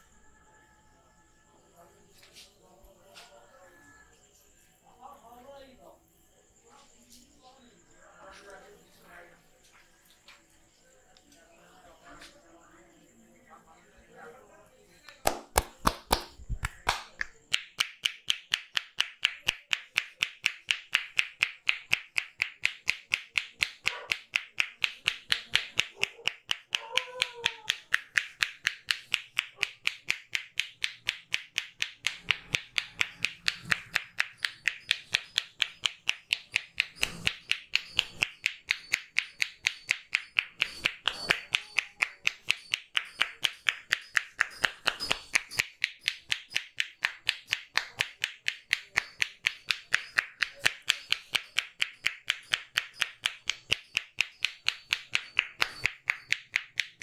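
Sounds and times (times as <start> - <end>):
hands slapping a head: 15.1 - 57.0.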